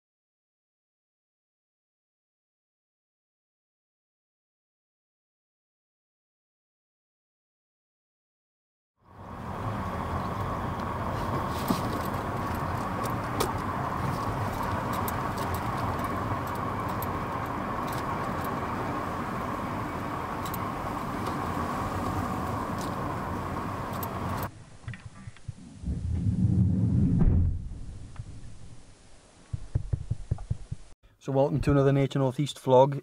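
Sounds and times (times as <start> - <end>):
road and tyre noise: 9.0 - 31.0
light clicks and rattles: 10.2 - 18.7.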